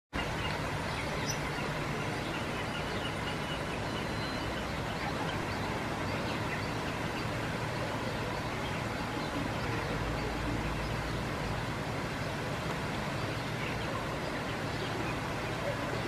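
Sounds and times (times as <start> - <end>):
distant birds chirping: 0.2 - 16.0.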